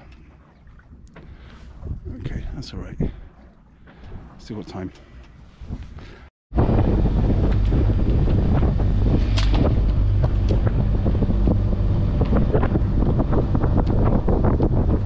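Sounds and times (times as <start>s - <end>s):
wind buffeting microphone: 1.6s - 15.0s
boat engine drone: 6.5s - 15.0s.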